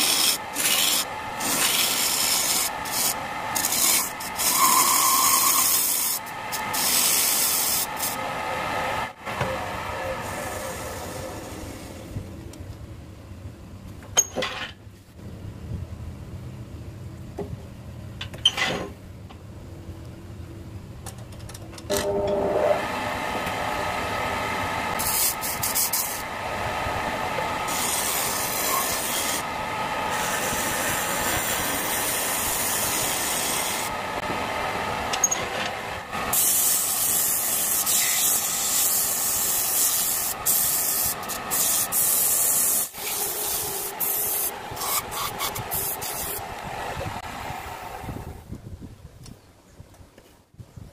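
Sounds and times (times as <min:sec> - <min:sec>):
tool scraping spinning wood: 0:00.0 - 0:08.2, 0:24.8 - 0:26.3, 0:27.3 - 0:34.0, 0:35.2 - 0:46.5.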